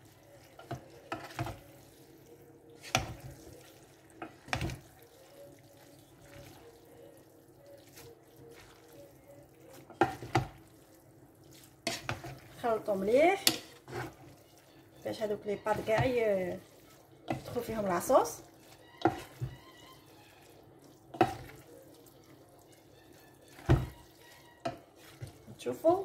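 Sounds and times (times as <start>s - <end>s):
spaghetti being stirred in a pot: 0.0s - 26.0s
wood knocking against pot: 19.0s - 19.7s, 23.6s - 24.0s.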